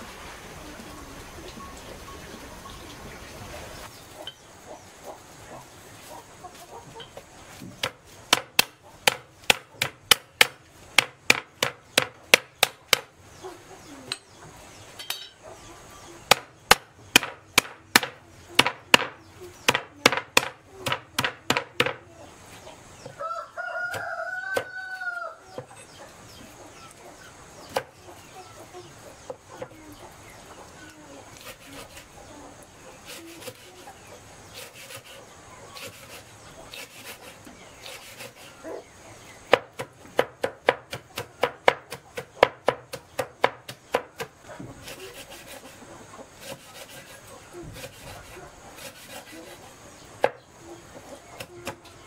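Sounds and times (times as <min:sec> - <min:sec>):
cleaver chopping on wooden block: 0:07.7 - 0:13.1, 0:16.3 - 0:22.0, 0:39.5 - 0:44.3
rooster crowing: 0:23.2 - 0:25.5.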